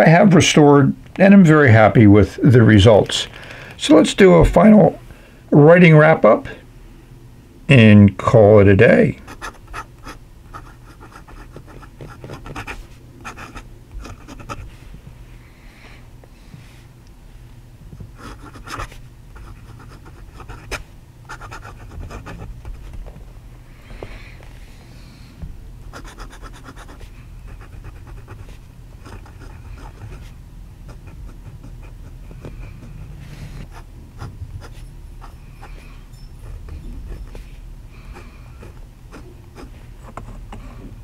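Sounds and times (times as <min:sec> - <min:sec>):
fountain pen scratching on paper: 0:09.3 - 0:14.7, 0:18.2 - 0:22.9, 0:25.9 - 0:40.6.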